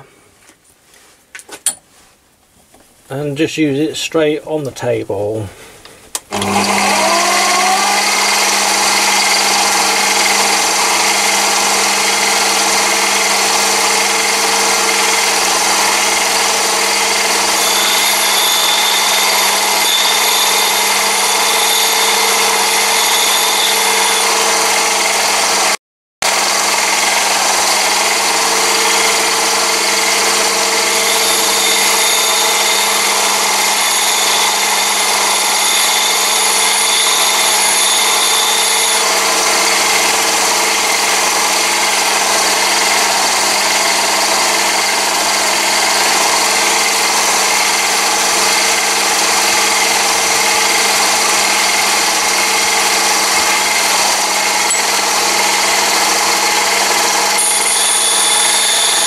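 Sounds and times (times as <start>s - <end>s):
lathe motor hum: 6.3s - 59.0s
thin high grinding whine: 6.3s - 59.0s.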